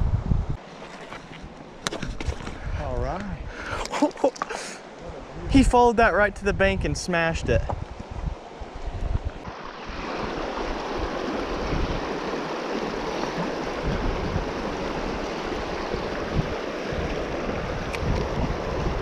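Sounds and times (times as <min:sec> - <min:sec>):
wind buffeting microphone: 0:00.0 - 0:00.6, 0:05.0 - 0:19.0
river rushing over rocks: 0:09.4 - 0:19.0.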